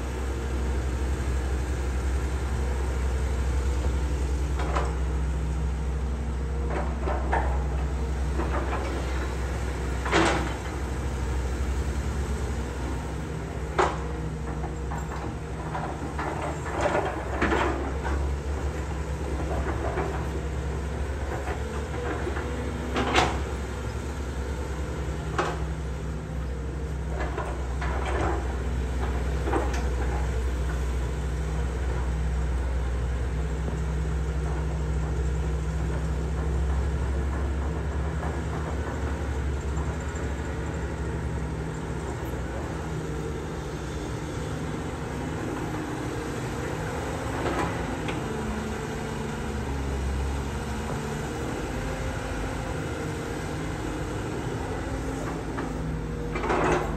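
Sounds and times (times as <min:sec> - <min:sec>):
excavator diesel engine running: 0:00.0 - 0:56.9
metallic clanks from excavator bucket: 0:55.2 - 0:56.9.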